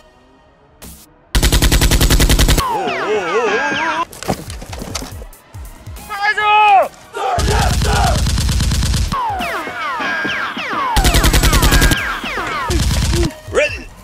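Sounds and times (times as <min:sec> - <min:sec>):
automatic gunfire: 0:01.4 - 0:02.7, 0:07.4 - 0:09.2, 0:11.0 - 0:13.3.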